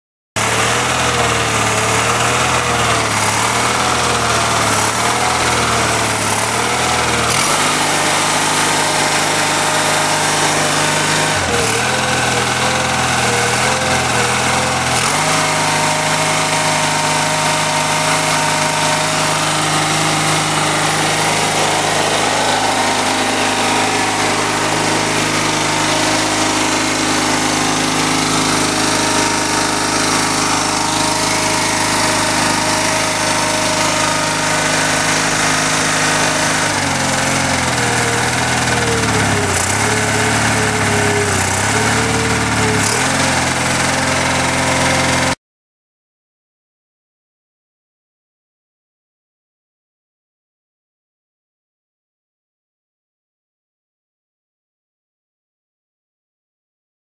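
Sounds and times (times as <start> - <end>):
tractor engine running: 0.4 - 45.4.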